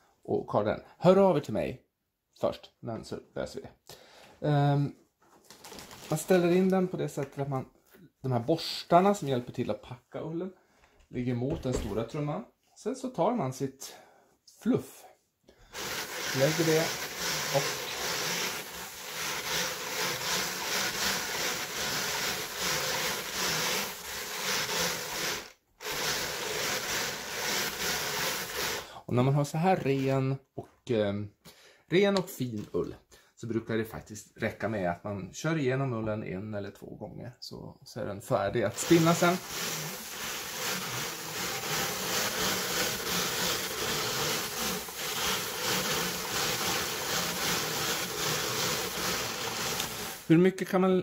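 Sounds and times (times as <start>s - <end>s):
drum carder rasping whir: 15.8s - 28.8s, 38.7s - 50.3s.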